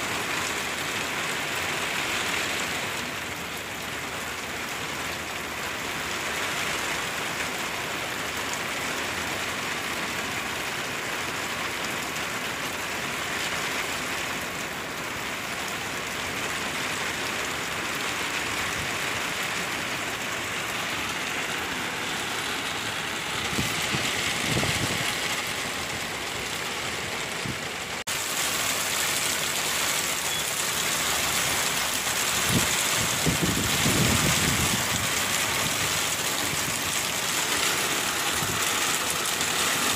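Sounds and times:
heavy rain pouring: 0.0 - 39.9
car passing on wet road: 16.1 - 39.9.

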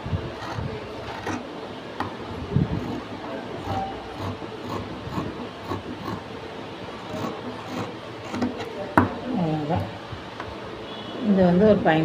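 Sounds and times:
scissors cutting cloth: 7.1 - 8.6.

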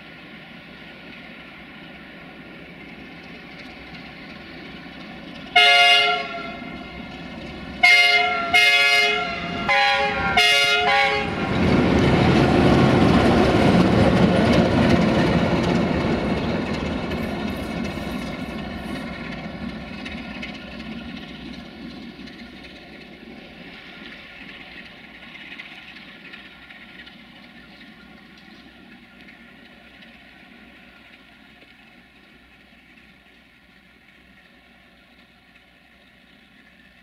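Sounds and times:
diesel locomotive engine: 0.0 - 37.0
train wheel noise: 0.0 - 37.0
locomotive horn blasts: 5.6 - 6.8, 7.8 - 11.4.

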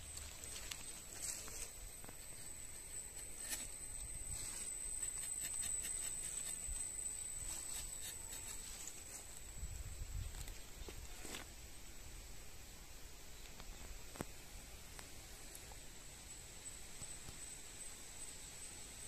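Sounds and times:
high-pitched insect trill: 0.0 - 10.7, 15.2 - 19.0
knife scraping tree bark: 1.6 - 9.3.

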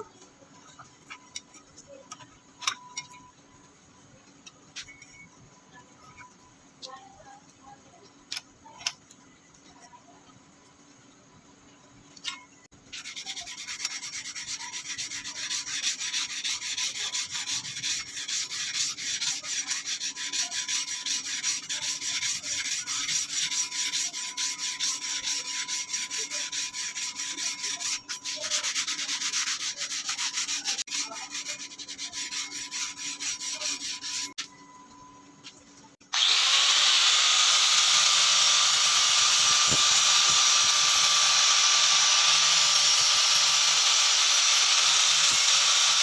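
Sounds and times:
sanding strip rasping on steel: 12.9 - 34.5, 36.2 - 46.0.

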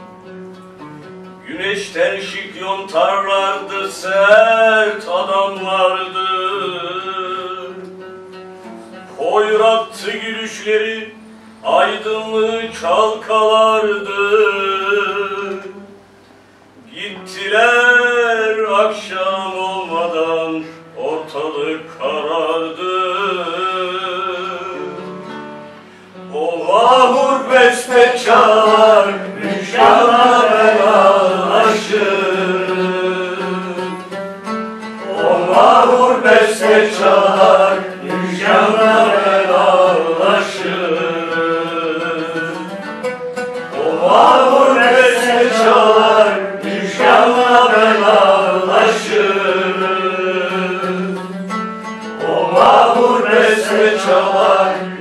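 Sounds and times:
plucked string accompaniment: 0.0 - 16.0, 18.9 - 55.0.

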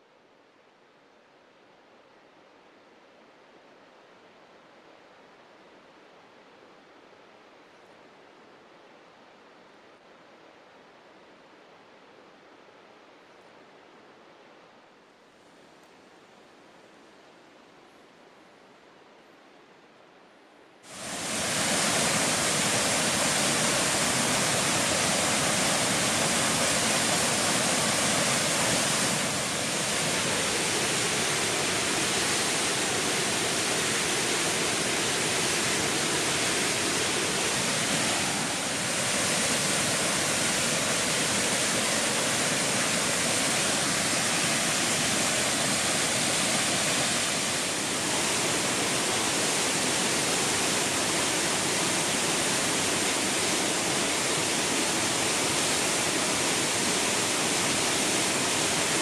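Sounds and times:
waterfall rushing and splashing: 20.9 - 59.0.

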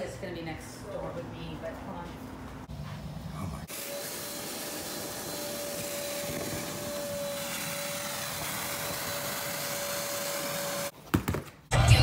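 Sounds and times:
shop vacuum motor whine: 3.7 - 10.9.

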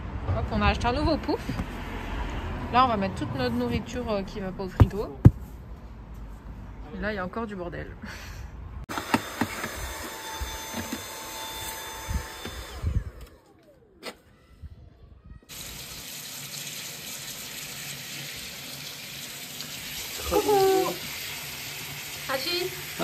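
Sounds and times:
water running from a tap: 15.5 - 23.0.

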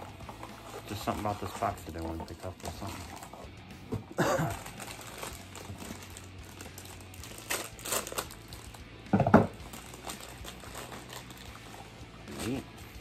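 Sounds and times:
packaging crinkling: 4.4 - 8.8, 9.6 - 12.6.

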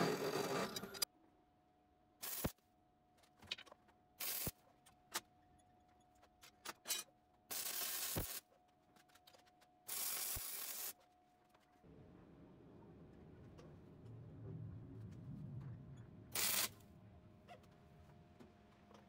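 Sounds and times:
welding arc crackling hiss: 2.2 - 2.6, 4.2 - 4.6, 7.5 - 8.4, 9.9 - 11.0, 16.4 - 16.7.

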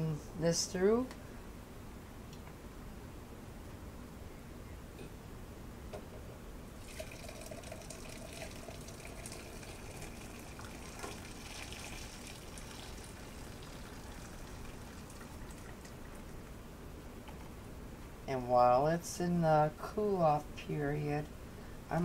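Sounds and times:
sauce trickling through strainer: 6.8 - 16.6.

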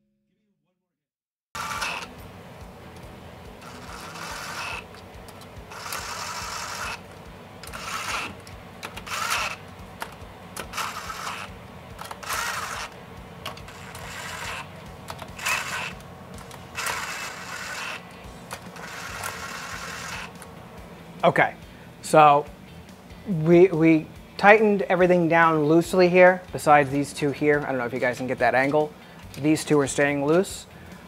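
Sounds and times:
cordless drill whirring: 1.6 - 2.2, 3.6 - 9.6, 10.6 - 20.4.

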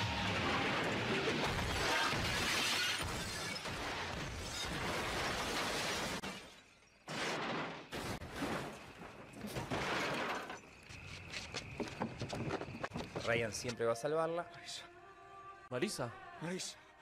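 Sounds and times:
car crash crunching and shattering: 0.0 - 10.7.

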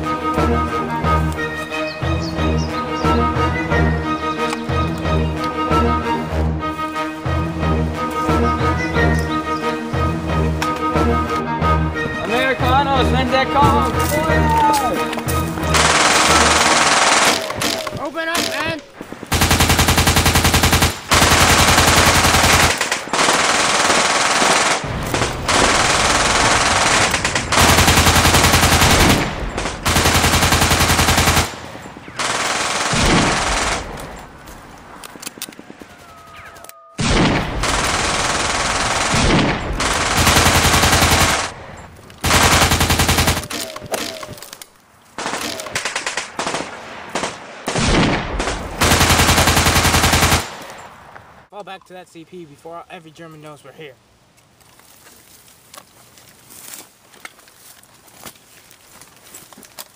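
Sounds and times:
machine-gun fire: 15.7 - 18.6, 19.3 - 31.6, 32.2 - 33.9, 37.0 - 41.6, 42.2 - 44.2, 45.2 - 50.6.

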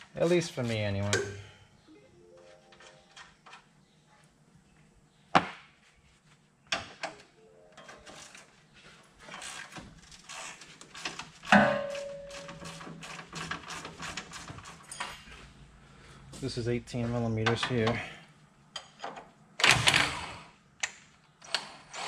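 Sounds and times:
metal clank ringing: 11.6 - 12.6.

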